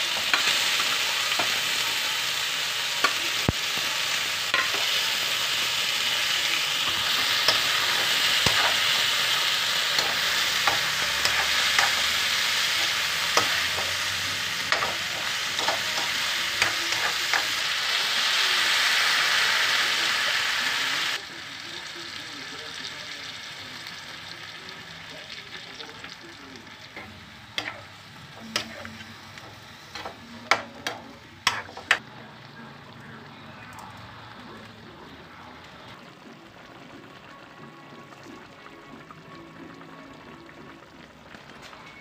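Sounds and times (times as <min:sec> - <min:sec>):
food sizzling in hot oil: 0:00.0 - 0:32.6
spatula scraping and knocking pan: 0:14.7 - 0:17.5.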